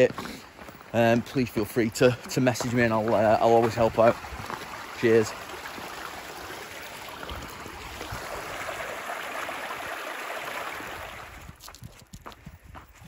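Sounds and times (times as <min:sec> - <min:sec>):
footsteps: 0:00.0 - 0:05.1, 0:11.4 - 0:13.0
stream splashing over rocks: 0:01.1 - 0:11.6.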